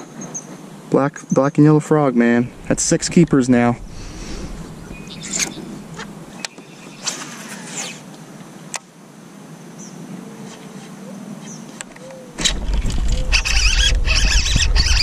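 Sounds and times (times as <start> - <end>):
low steady hiss: 0.0 - 14.1
gear clicking and knocking on kayak: 11.8 - 15.0.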